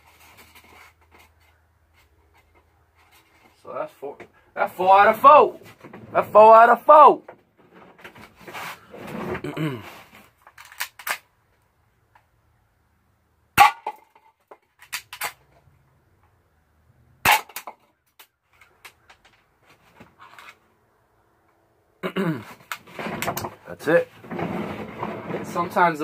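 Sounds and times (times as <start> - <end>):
toy gun handling clicks: 10.5 - 11.3, 14.8 - 15.4.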